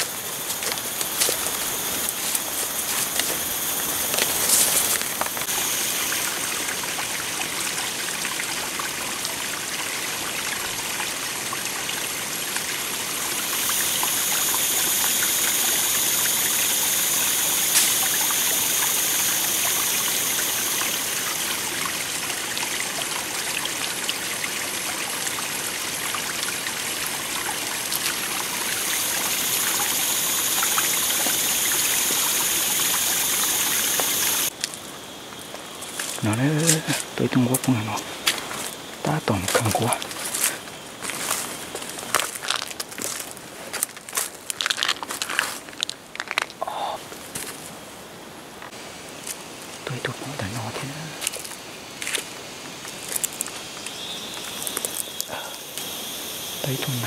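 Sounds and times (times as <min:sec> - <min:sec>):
footsteps snapping twigs: 0:00.0 - 0:05.5, 0:39.5 - 0:46.6, 0:51.2 - 0:55.1
stream splashing over stones: 0:00.0 - 0:34.9, 0:35.8 - 0:47.5.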